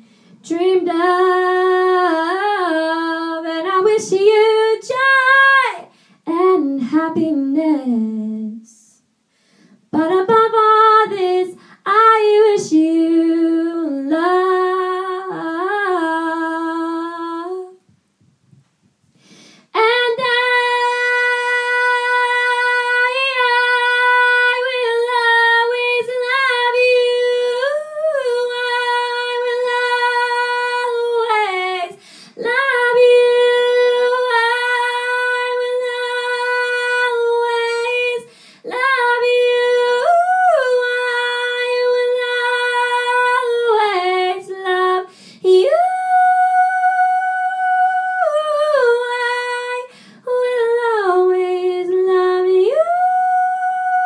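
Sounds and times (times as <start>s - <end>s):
singer breathing: 0.0s - 0.4s, 5.9s - 6.3s, 9.2s - 9.9s, 11.6s - 11.9s, 19.1s - 19.7s, 32.0s - 32.4s, 38.3s - 38.7s, 45.1s - 45.4s, 49.9s - 50.2s
woman singing unaccompanied: 0.4s - 9.0s, 9.9s - 17.8s, 19.7s - 54.0s.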